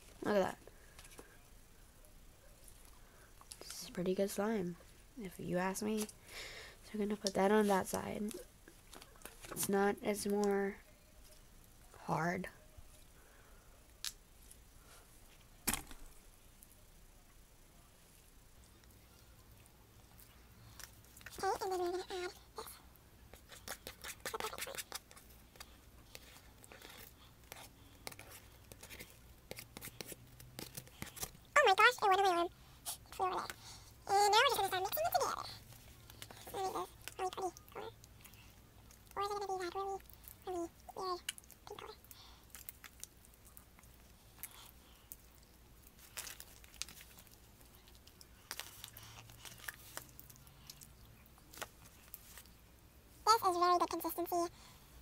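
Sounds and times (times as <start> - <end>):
sticky slime crackling: 23.4 - 52.5.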